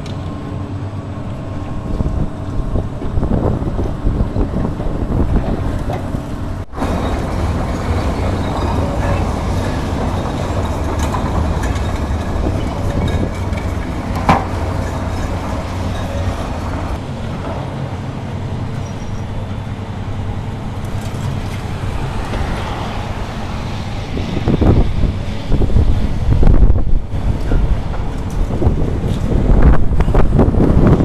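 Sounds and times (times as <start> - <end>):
excavator diesel engine rumbling: 0.0 - 31.0
rubble being worked: 6.8 - 17.0.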